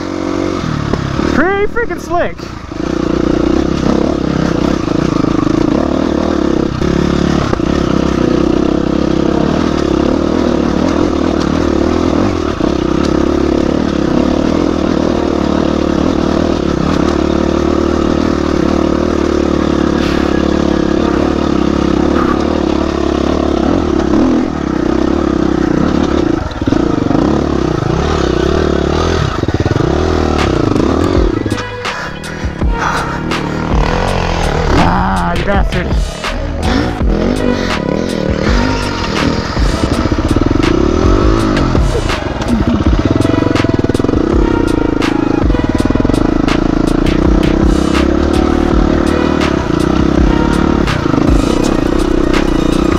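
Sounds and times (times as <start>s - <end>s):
dirt bike engine running: 0.0s - 52.9s
knocks and clatter from bike: 0.8s - 1.4s, 2.7s - 34.2s.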